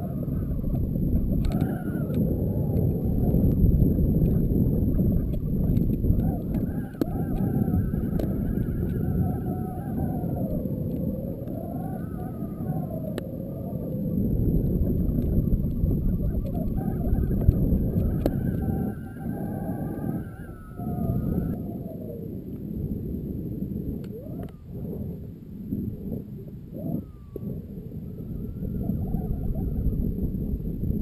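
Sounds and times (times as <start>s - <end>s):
rushing air buffeting camera: 0.0s - 21.6s.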